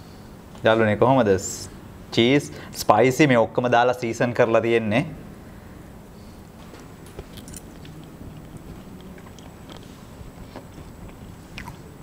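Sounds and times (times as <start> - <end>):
low room hum: 0.0 - 12.0
person chewing: 6.7 - 12.0.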